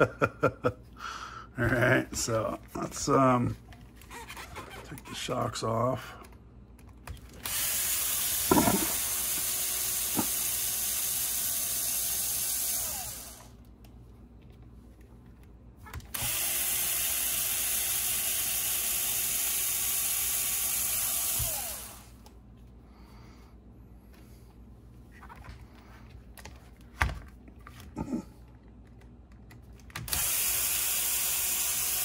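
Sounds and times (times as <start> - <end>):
cordless drill whining: 7.4 - 13.5, 16.1 - 22.2, 30.1 - 32.0.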